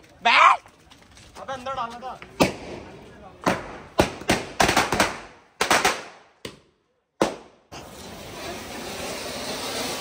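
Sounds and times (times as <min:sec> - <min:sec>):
firecrackers banging: 0:02.2 - 0:10.0.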